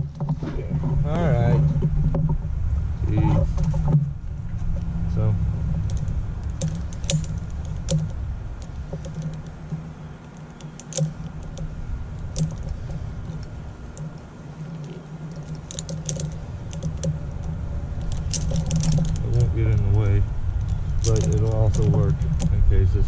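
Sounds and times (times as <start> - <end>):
low hum: 0.0 - 23.0
climbing hardware clinking: 5.7 - 22.6.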